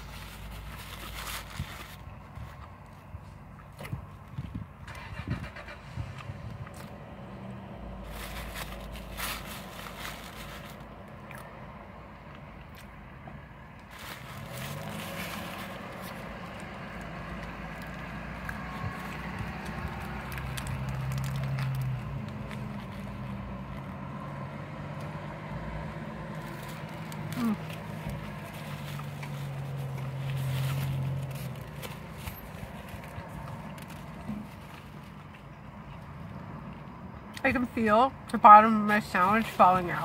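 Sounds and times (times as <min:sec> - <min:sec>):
paper wrapper rustling: 0:00.0 - 0:03.0, 0:08.0 - 0:11.2, 0:13.8 - 0:24.0, 0:26.3 - 0:35.4
low vehicle hum: 0:00.0 - 0:40.0.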